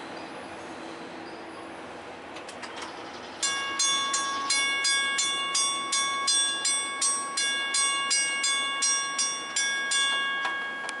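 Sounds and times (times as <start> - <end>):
crossing warning bell ringing: 3.3 - 11.0.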